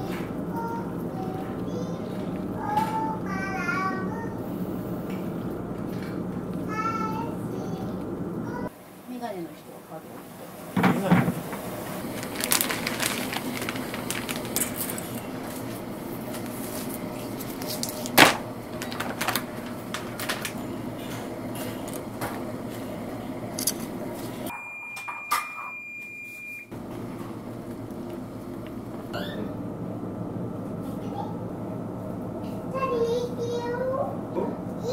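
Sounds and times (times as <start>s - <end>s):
water boiling in a pot: 8.7s - 15.0s
high beep tone: 24.5s - 26.7s.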